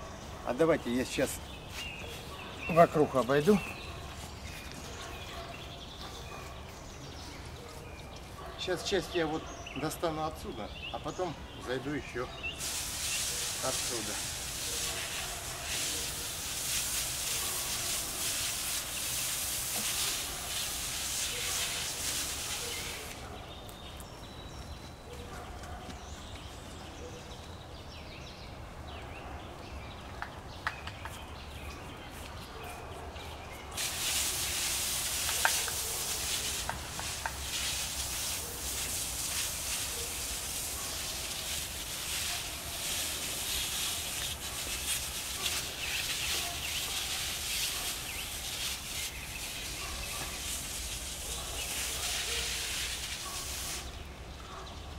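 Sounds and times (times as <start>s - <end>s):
spray wand hissing: 12.6s - 23.2s, 33.8s - 54.0s.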